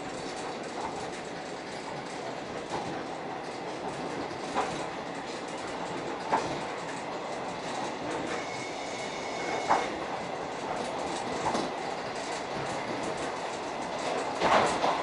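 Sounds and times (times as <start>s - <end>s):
train rolling noise: 0.0s - 15.0s
thin high squeal: 8.3s - 9.9s
wheel clicks over rail joints: 10.7s - 15.0s.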